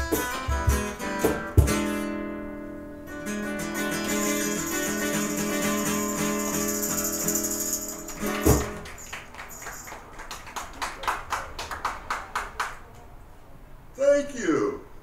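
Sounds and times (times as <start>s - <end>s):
sharp percussive hits: 4.1s - 10.0s.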